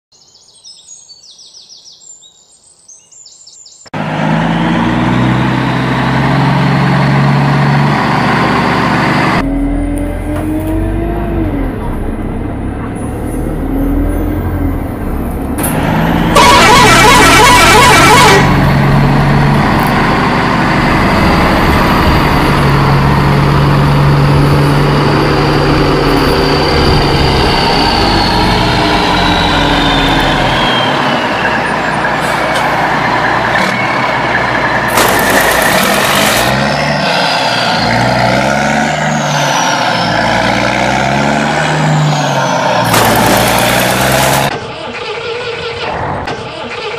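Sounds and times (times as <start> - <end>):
truck engine running: 4.0 - 46.9
horn toots: 16.0 - 19.1.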